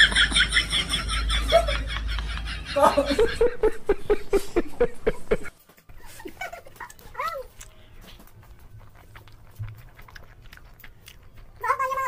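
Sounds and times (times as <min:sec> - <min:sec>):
man laughing: 0:00.0 - 0:07.0
high-pitched giggling: 0:00.0 - 0:07.5.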